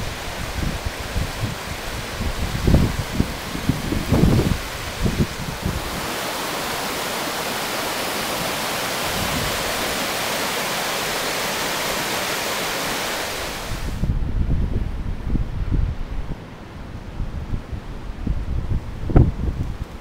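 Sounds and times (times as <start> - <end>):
wind buffeting microphone: 0.0 - 10.5, 13.3 - 20.0
river roaring over rapids: 0.0 - 14.2.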